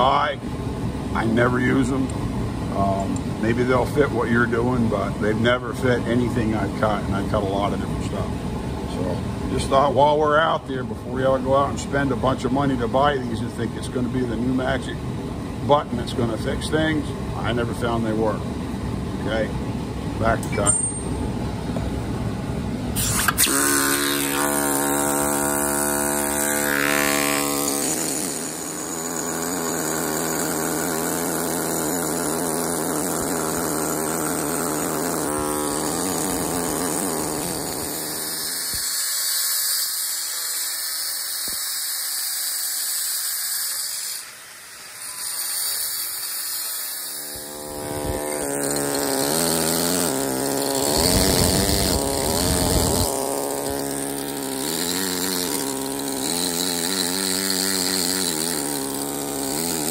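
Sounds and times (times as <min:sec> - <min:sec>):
air hammer cutting stone: 0:22.9 - 0:59.9.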